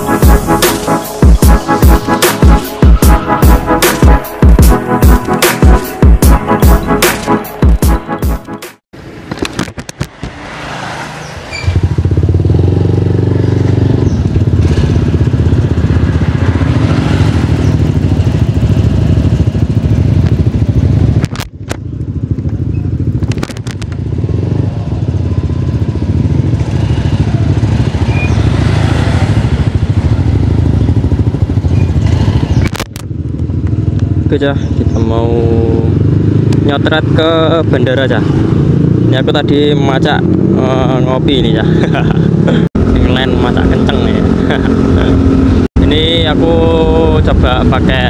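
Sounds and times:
motorcycle engine idling: 0:11.8 - 0:23.3, 0:23.9 - 0:28.6, 0:29.3 - 0:37.6.

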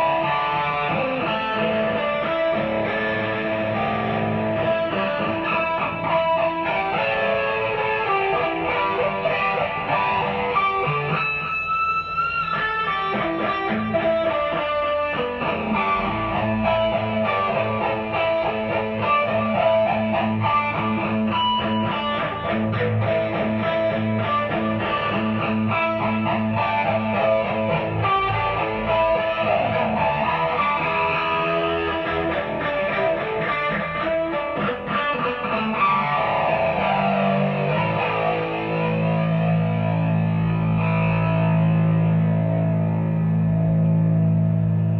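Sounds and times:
electric guitar notes and chords: 0:00.0 - 0:44.9.

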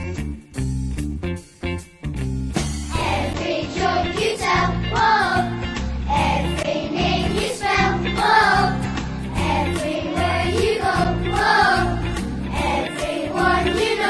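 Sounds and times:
instrumental accompaniment with bass: 0:00.0 - 0:14.0
children singing: 0:02.9 - 0:05.5, 0:06.1 - 0:08.8, 0:09.4 - 0:14.0.

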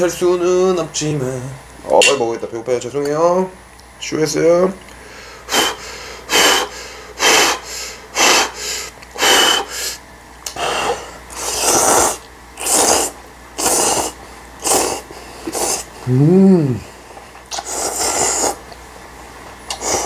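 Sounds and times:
person slurping noodles: 0:10.7 - 0:16.9, 0:17.5 - 0:18.6, 0:19.7 - 0:20.0.

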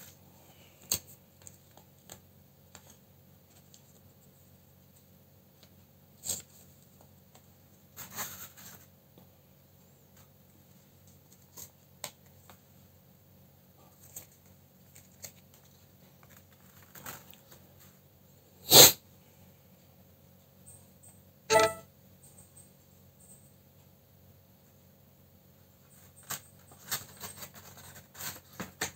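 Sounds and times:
paper rustling: 0:13.9 - 0:18.0, 0:25.9 - 0:28.9.

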